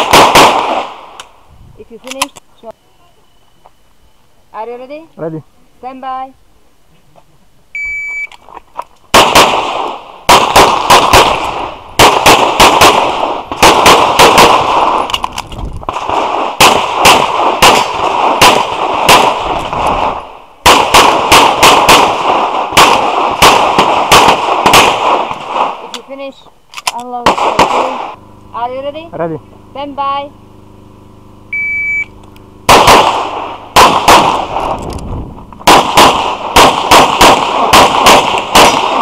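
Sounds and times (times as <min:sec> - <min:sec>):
pistol shots: 0:00.0 - 0:01.0, 0:09.1 - 0:15.2, 0:15.9 - 0:25.8, 0:27.2 - 0:28.2, 0:32.7 - 0:34.8, 0:35.6 - 0:39.0
shot timer beep: 0:07.8 - 0:08.3, 0:31.5 - 0:32.2.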